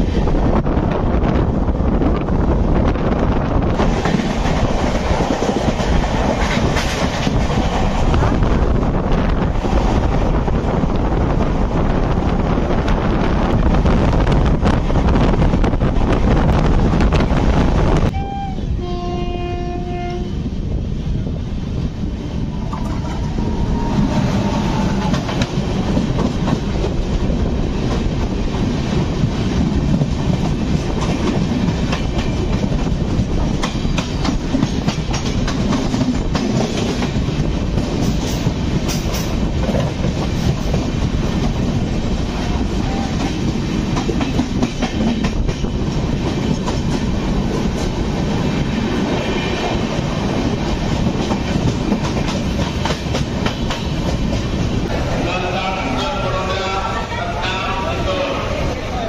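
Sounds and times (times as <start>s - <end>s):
rushing air: 0.0s - 19.0s, 19.8s - 55.4s
passing train coaches: 0.0s - 59.0s
train wheel clatter: 2.1s - 18.1s, 22.6s - 56.8s
train horn: 18.1s - 20.5s.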